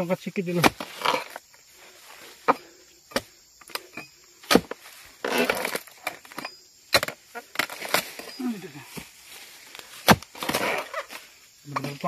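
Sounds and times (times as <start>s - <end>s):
blade crunching through stalk: 4.5s - 6.3s, 10.0s - 11.1s
chisel chopping into wood: 10.0s - 10.6s.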